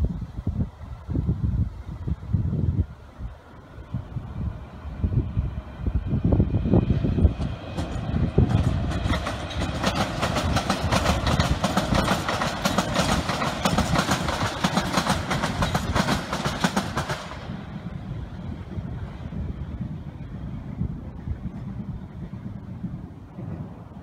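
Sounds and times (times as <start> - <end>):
train passing low rumble: 0.0 - 24.0
train wheels clickety-clack: 6.8 - 17.9.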